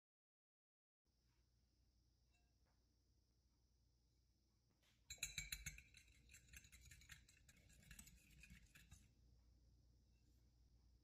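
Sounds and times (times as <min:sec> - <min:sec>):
whisk clinking against bowl: 0:05.1 - 0:09.0.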